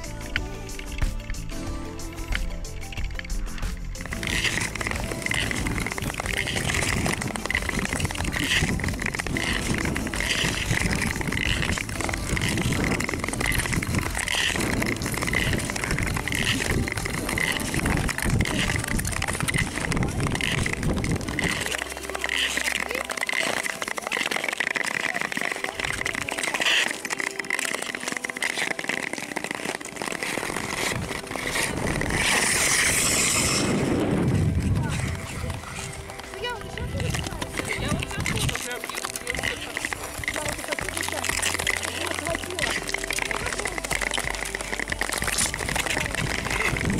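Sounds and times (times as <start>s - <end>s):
ice skates scraping on ice: 0.0s - 46.9s
wind rumbling on microphone: 2.8s - 22.2s, 30.4s - 46.9s.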